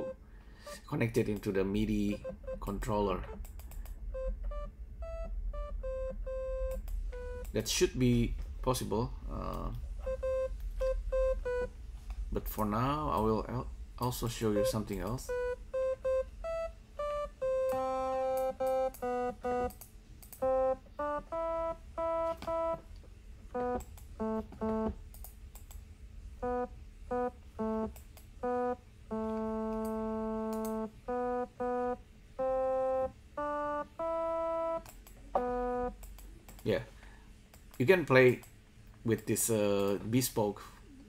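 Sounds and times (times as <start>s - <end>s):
synthesizer notes: 2.0s - 3.4s, 4.0s - 7.6s, 9.4s - 11.7s, 14.5s - 19.7s, 20.4s - 22.8s, 23.5s - 25.0s, 26.4s - 34.8s, 35.4s - 36.0s.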